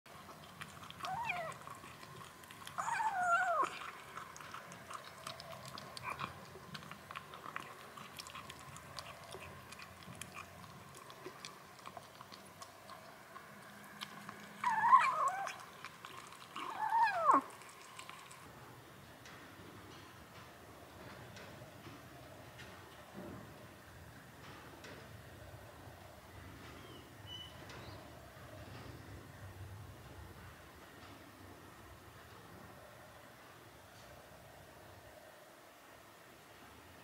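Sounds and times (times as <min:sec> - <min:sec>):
kittens chewing food: 0:00.1 - 0:18.6
kittens meowing: 0:01.0 - 0:01.8, 0:02.8 - 0:03.8, 0:14.6 - 0:15.6, 0:16.6 - 0:17.5.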